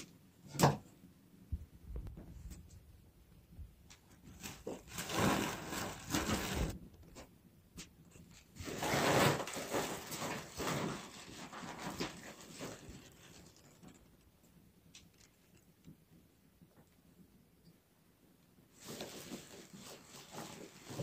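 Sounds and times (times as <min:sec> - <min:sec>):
plastic sack rustling: 0:04.3 - 0:06.8, 0:08.4 - 0:14.1, 0:18.7 - 0:21.0.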